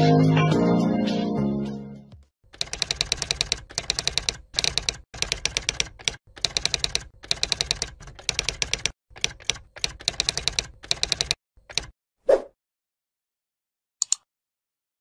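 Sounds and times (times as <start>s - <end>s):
typewriter keys clacking: 2.5s - 11.9s.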